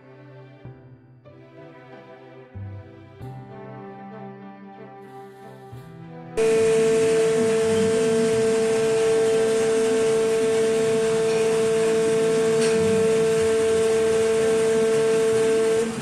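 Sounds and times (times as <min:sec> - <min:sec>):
machine whining: 0:06.4 - 0:16.0.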